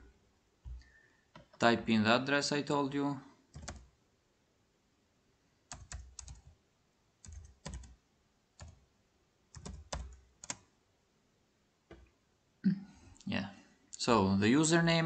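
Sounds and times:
computer keyboard keys clicking: 3.5 - 3.9, 5.7 - 6.5, 7.2 - 8.0, 8.6 - 8.8, 9.5 - 10.7.

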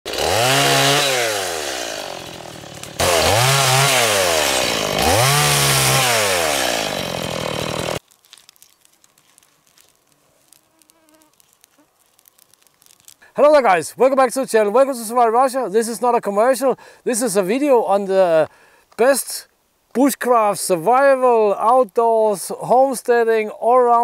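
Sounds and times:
chainsaw cutting branches: 0.1 - 13.3.

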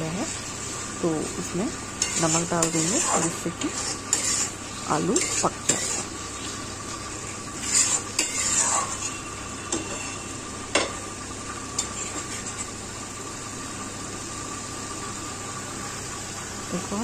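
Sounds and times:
food sizzling in oil: 0.0 - 17.0
metal spatula scraping a pan: 2.0 - 6.6, 7.2 - 10.3, 11.8 - 12.7.

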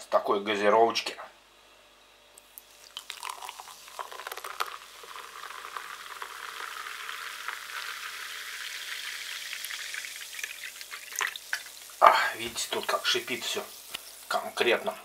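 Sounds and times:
lemonade pouring into a cup: 2.4 - 14.2
fizzing hiss: 2.6 - 15.0.

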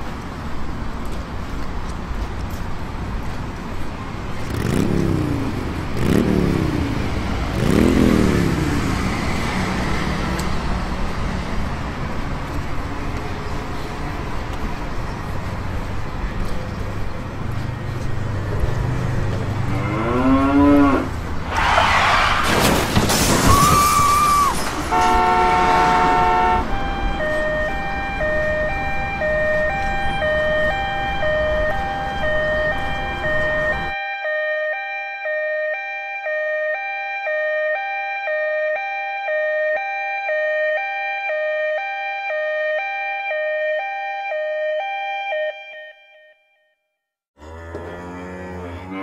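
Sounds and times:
loud noisy crash: 21.5 - 25.2
two-tone ambulance siren: 23.5 - 46.8.

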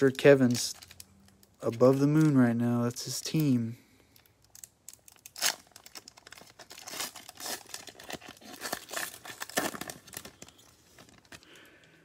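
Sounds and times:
wrapper tearing and crinkling: 4.2 - 11.5.

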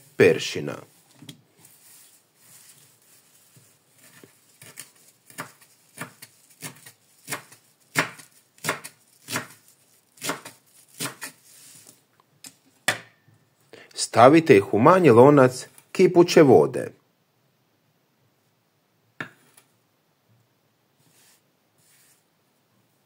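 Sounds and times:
leaves rustling: 0.0 - 11.8
knife chopping on cutting board: 4.1 - 9.6, 10.2 - 11.4.

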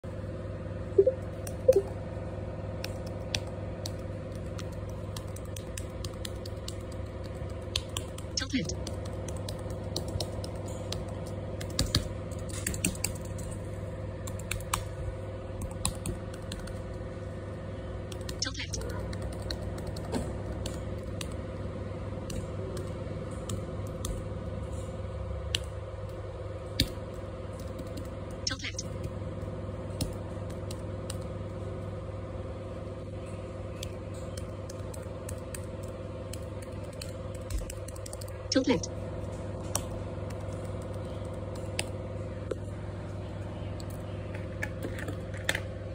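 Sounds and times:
steady electrical hum: 0.0 - 45.9
computer keyboard keys clicking: 2.8 - 13.5, 14.2 - 14.9, 15.6 - 17.0, 18.1 - 21.4, 22.2 - 24.2, 26.8 - 29.1, 33.8 - 38.7, 39.7 - 41.9.

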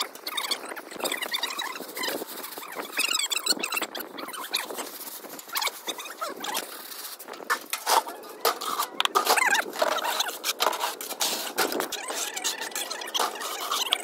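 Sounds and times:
trowel scraping bucket: 4.6 - 14.0
float scraping over wet render: 4.8 - 14.0.

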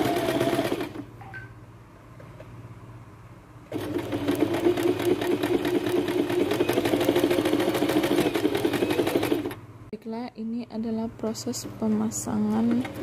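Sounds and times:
sewing machine stitching: 0.0 - 1.0, 3.7 - 9.6.

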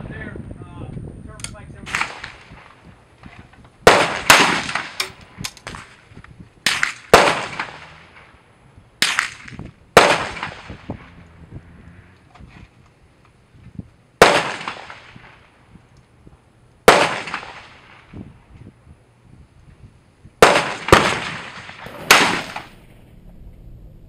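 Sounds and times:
rifle shots: 1.8 - 2.8, 3.8 - 6.0, 6.6 - 8.4, 9.0 - 11.1, 14.2 - 15.4, 16.9 - 18.1, 20.4 - 23.0.

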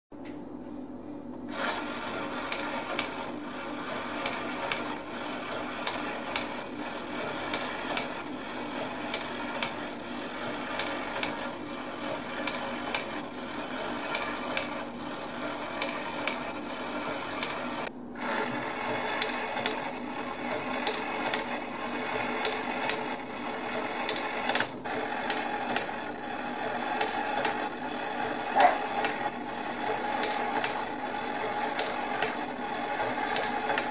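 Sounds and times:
gear train whirring: 1.5 - 33.9
clock mechanism clicks: 2.0 - 3.2, 4.2 - 5.0, 5.8 - 6.6, 7.4 - 8.2, 9.0 - 9.9, 10.6 - 11.5, 12.4 - 13.2, 15.7 - 16.5, 17.4 - 17.9, 18.9 - 19.9, 20.6 - 23.2, 24.0 - 26.1, 26.9 - 27.7, 28.5 - 33.9.

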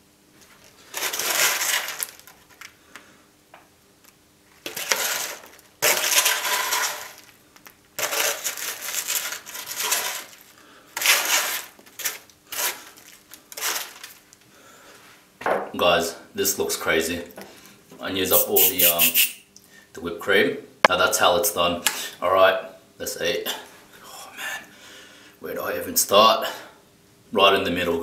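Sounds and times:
chocolate balls rattling in box: 0.9 - 2.4, 4.7 - 7.4, 8.0 - 14.3.

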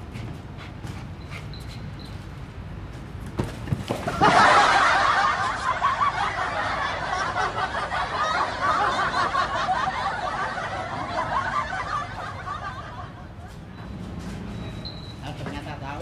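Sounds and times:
loud chuckling laughter: 4.1 - 13.6.

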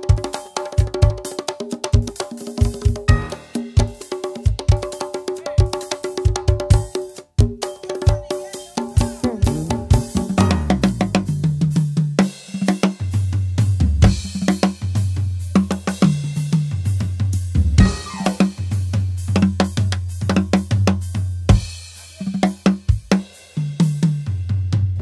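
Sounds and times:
snare drum: 0.0 - 13.1, 17.5 - 24.2
bass drum: 2.7 - 4.8, 5.6 - 12.2, 12.8 - 23.2, 24.0 - 25.0
electric bass line: 9.0 - 11.7, 17.6 - 18.9.

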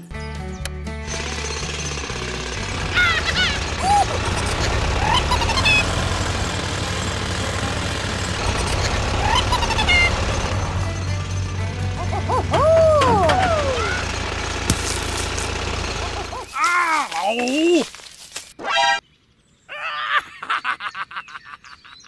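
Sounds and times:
chirping tones: 0.0 - 14.2
small tractor rumbling: 0.0 - 17.8
cartoonish high-pitched yelps: 2.9 - 5.9.

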